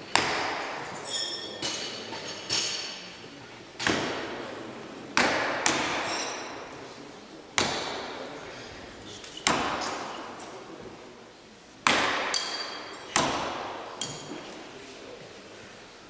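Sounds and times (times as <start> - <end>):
knives striking wooden targets: 0.1 - 3.1, 3.8 - 4.4, 5.2 - 6.7, 7.6 - 8.2, 9.1 - 10.6, 11.8 - 14.5
brief metallic ring: 1.0 - 1.6.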